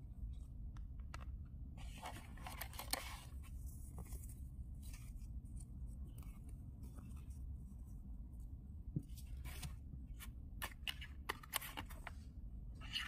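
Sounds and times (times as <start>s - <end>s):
plastic and paper crinkling: 1.8s - 8.0s.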